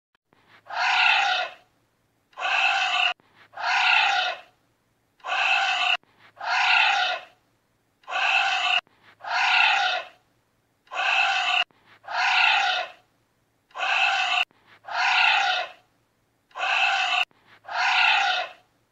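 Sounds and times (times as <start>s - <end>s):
anteater harsh calls: 0.7s - 1.6s, 2.4s - 4.5s, 5.2s - 7.3s, 8.1s - 10.2s, 10.9s - 13.0s, 13.8s - 15.8s, 16.5s - 18.6s.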